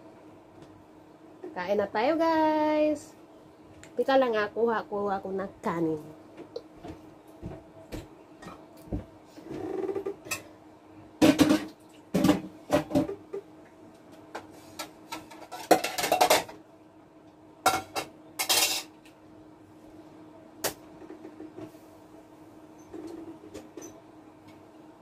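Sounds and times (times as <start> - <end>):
dishes and cutlery clattering: 15.2 - 16.5, 17.7 - 18.9.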